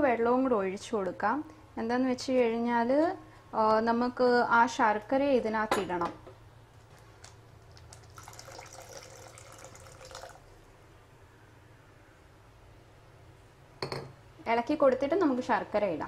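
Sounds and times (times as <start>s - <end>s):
water pouring into pan: 7.8s - 10.5s.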